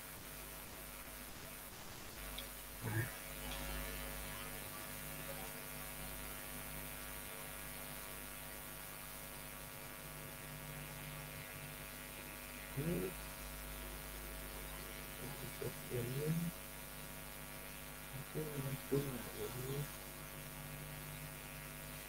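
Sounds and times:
electrical mains hum: 0:00.0 - 0:22.0
brief voice: 0:02.8 - 0:05.6.

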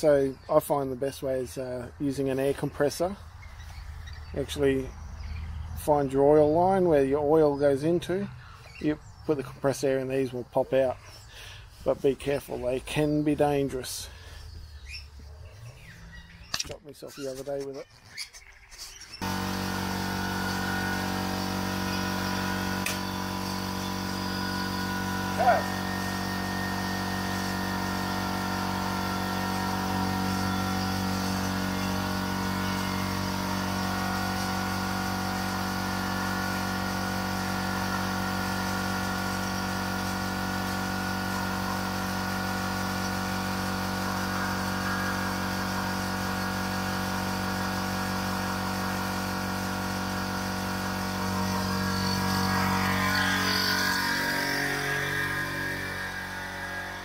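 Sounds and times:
air compressor motor running: 0:19.2 - 0:57.0.

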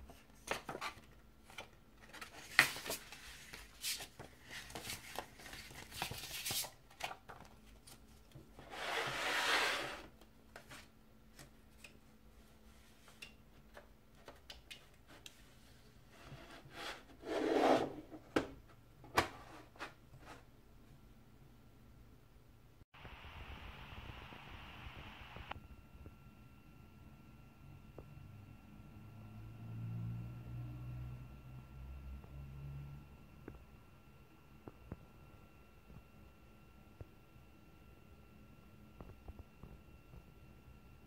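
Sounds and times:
paper rustling and crinkling: 0:00.1 - 0:08.5.

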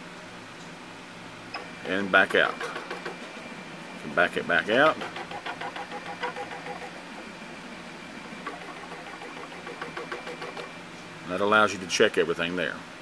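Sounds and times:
faint machine hum: 0:00.0 - 0:13.0
stepper motors ticking rapidly: 0:01.6 - 0:10.8.

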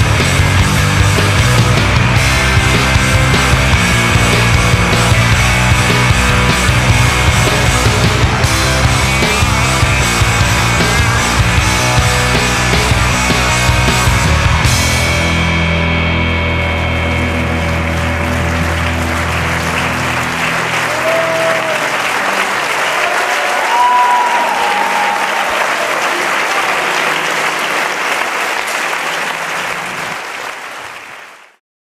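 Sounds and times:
music: 0:00.0 - 0:30.2
crowd clapping and cheering: 0:00.0 - 0:31.6
shouts or whistles: 0:20.9 - 0:22.0, 0:23.0 - 0:25.7.

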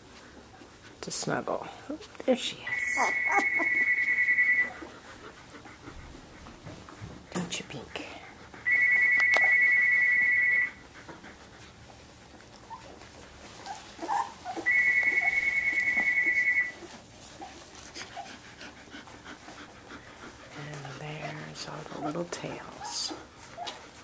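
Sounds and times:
puppies squeaking and fussing: 0:02.6 - 0:06.3, 0:08.5 - 0:24.0
puppy whining: 0:02.7 - 0:05.9, 0:08.5 - 0:24.0.

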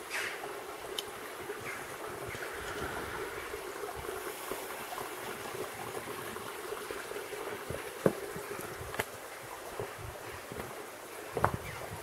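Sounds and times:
stream gurgling over rocks: 0:00.0 - 0:12.0.

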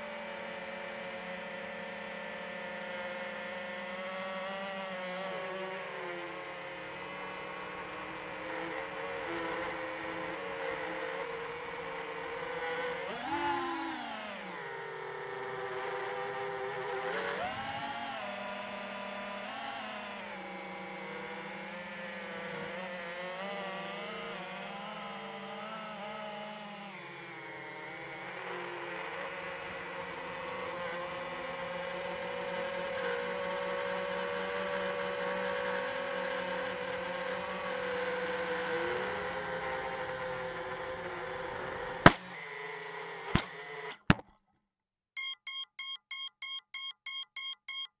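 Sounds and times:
drone motor and propeller whine: 0:00.0 - 0:44.0
sharp knocks in grass: 0:42.1 - 0:42.3
rapid regular beeping: 0:45.2 - 0:48.0.

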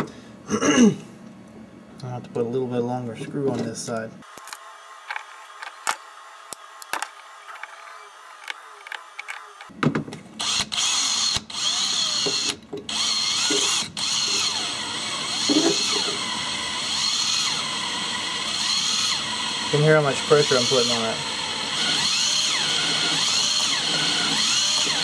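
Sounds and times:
cordless drill whining: 0:10.4 - 0:25.0.

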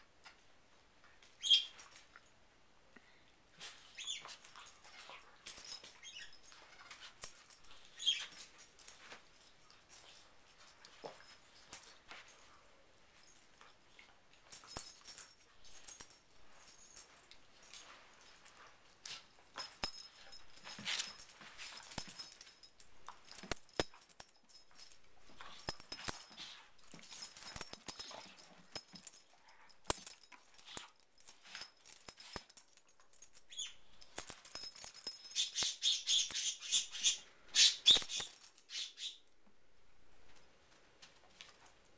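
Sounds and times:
dogs scuffling and mouthing: 0:03.5 - 0:35.8.

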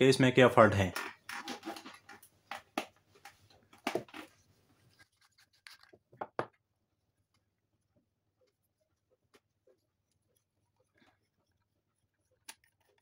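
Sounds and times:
torch parts scraping and knocking: 0:00.8 - 0:06.0.

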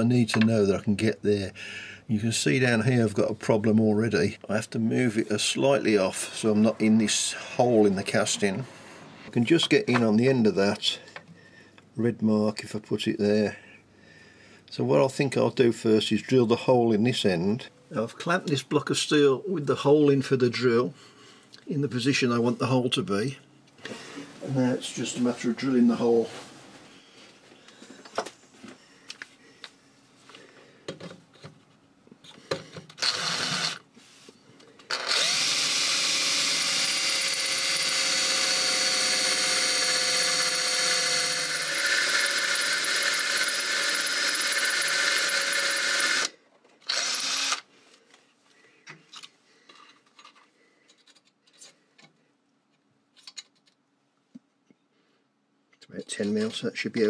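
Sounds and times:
electric drill drilling metal: 0:33.0 - 0:33.8, 0:34.9 - 0:47.7.

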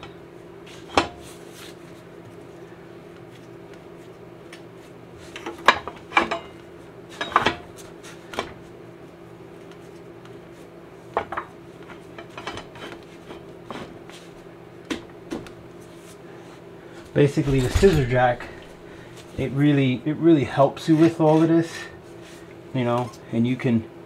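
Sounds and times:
metallic clinks and knocks: 0:17.4 - 0:19.0.

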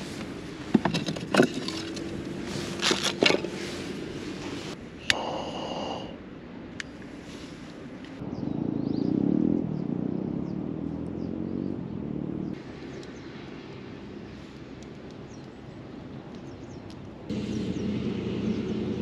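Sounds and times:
small birds chirping: 0:08.1 - 0:19.0
vehicle engine passing by: 0:17.3 - 0:19.0.

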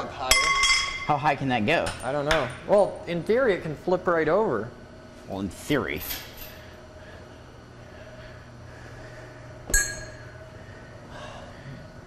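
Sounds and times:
low steady hum: 0:00.0 - 0:12.0
metallic clink: 0:09.7 - 0:10.3.

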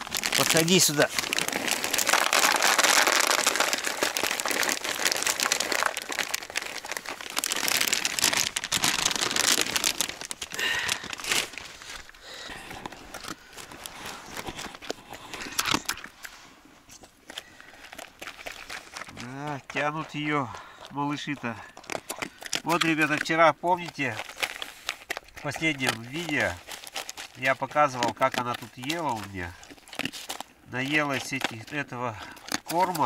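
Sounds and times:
dog eating kibble: 0:00.0 - 0:10.8, 0:17.0 - 0:33.0
plastic bag crinkling: 0:00.0 - 0:16.3, 0:16.9 - 0:33.0.

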